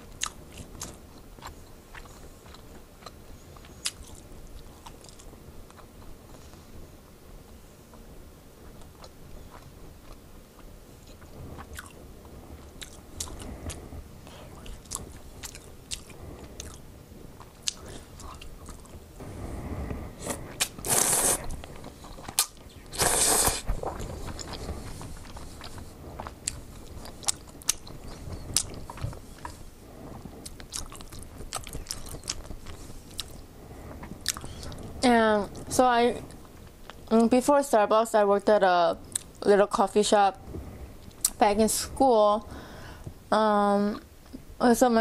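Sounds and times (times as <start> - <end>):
wet chewing: 0.1 - 6.1, 8.7 - 16.8, 17.4 - 19.0, 20.2 - 33.4, 34.0 - 34.9
noodle slurps: 20.2 - 21.6, 22.9 - 24.9.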